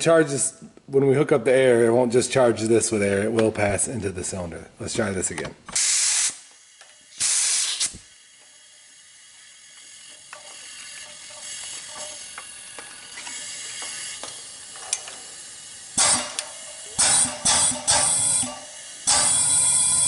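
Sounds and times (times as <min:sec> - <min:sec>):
air hose hissing: 0:05.7 - 0:20.0
faint hiss of air: 0:05.7 - 0:20.0.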